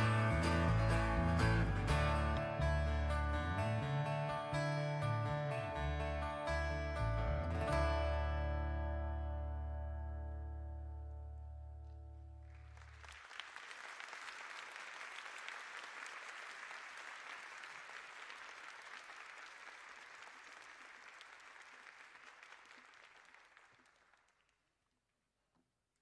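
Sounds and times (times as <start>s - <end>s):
live band chord: 0.0s - 12.0s
audience applauding: 12.4s - 24.6s.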